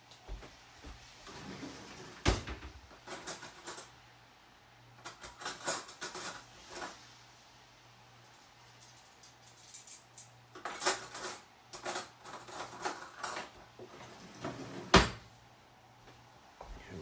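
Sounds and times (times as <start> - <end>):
kitchenware clattering and clicking: 2.2 - 4.0, 5.0 - 7.0, 8.9 - 15.2.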